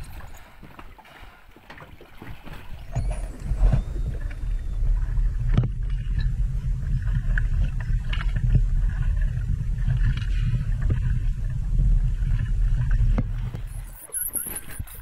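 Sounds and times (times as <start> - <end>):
low underwater rumble: 2.2 - 14.0
faint high whistle: 2.8 - 5.2, 13.7 - 15.0.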